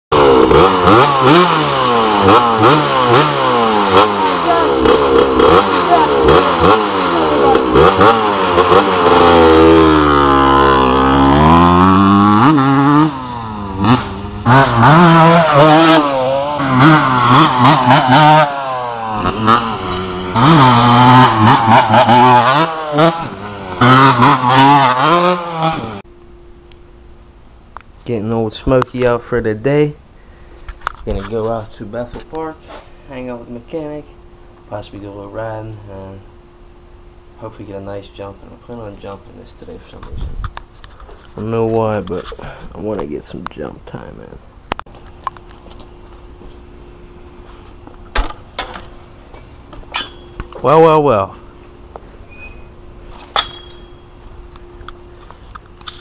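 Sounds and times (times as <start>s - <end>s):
dirt bike engine revving: 0.1s - 26.0s.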